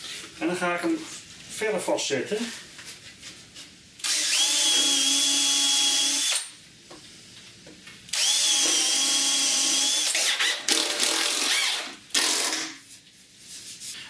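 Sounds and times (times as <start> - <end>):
cordless drill boring into wood: 4.0 - 6.5, 8.1 - 12.6.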